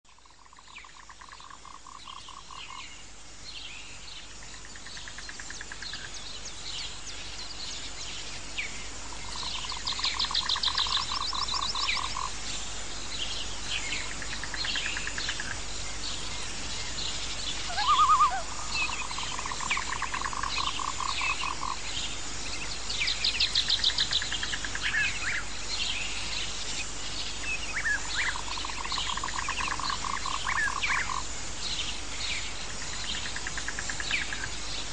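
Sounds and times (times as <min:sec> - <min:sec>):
pulsed animal trills: 0:17.7 - 0:19.4.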